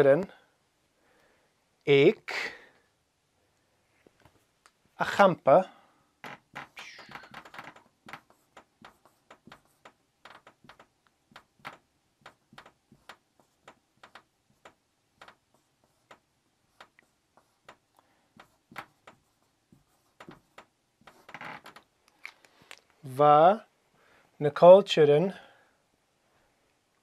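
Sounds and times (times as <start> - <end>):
marker tapping and scratching: 6.2 - 22.3.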